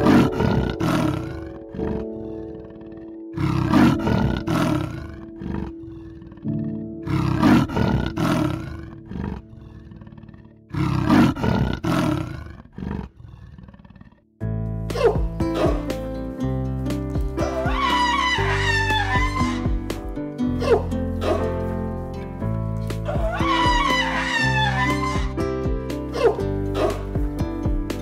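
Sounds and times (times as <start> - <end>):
background music: 0.0 - 12.5, 14.4 - 28.0
leopard growling calls: 0.0 - 14.2, 17.4 - 19.8, 23.0 - 25.4.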